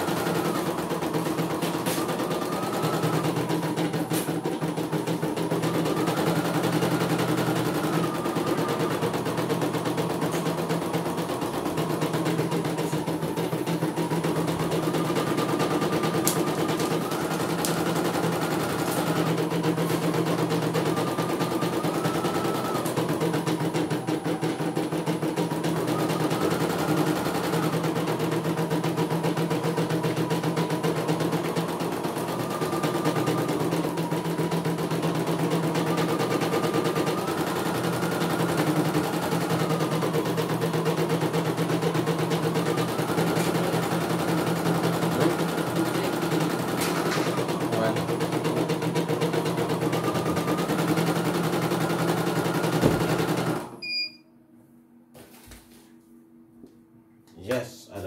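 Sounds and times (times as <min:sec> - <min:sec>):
embroidery machine stitching: 0:00.0 - 0:53.8
steady motor hum: 0:00.0 - 0:54.2
short machine beep: 0:53.8 - 0:54.3.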